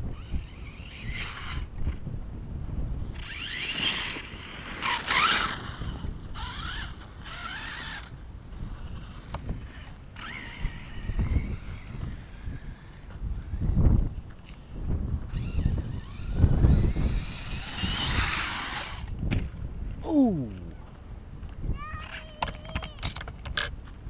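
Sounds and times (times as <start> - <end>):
wind rumbling on microphone: 0.0 - 24.0
toy truck motor whining: 0.1 - 2.0, 3.0 - 14.2, 15.3 - 19.2.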